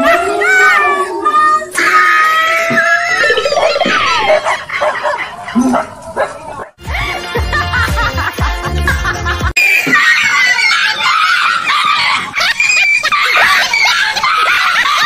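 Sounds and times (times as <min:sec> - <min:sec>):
laughter: 0:03.2 - 0:05.9, 0:06.8 - 0:10.0, 0:12.3 - 0:15.0
music with heavy beat: 0:06.8 - 0:09.5
high-pitched screaming cries: 0:09.6 - 0:15.0.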